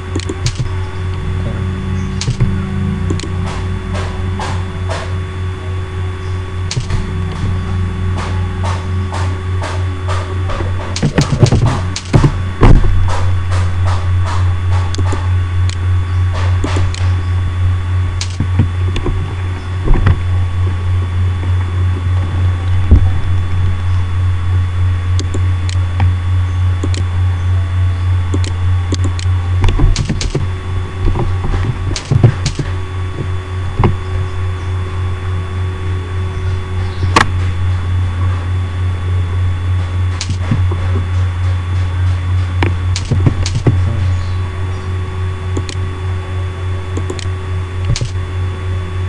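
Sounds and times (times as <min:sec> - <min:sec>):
steady low hum: 0:00.0 - 0:49.0
mouse and keyboard clicks: 0:14.9 - 0:15.8, 0:26.8 - 0:27.1.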